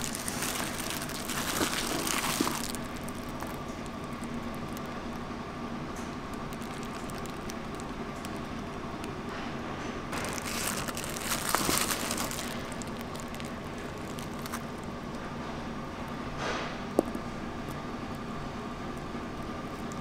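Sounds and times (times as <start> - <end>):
plastic glove crinkling: 0.0 - 5.2, 6.2 - 9.2, 10.1 - 14.9
steady low hum: 0.0 - 20.0.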